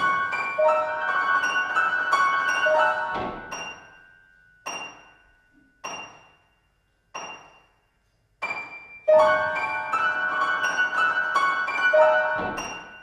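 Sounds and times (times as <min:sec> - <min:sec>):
solo grand piano: 0:00.0 - 0:04.0, 0:08.4 - 0:13.0.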